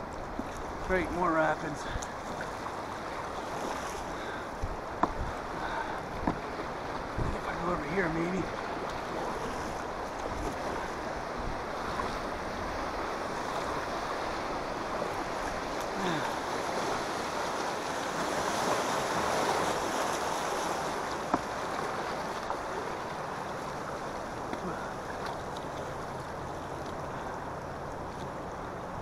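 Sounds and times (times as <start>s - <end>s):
river rapids rushing and splashing: 0.0s - 29.0s
wind buffeting microphone: 3.8s - 19.8s.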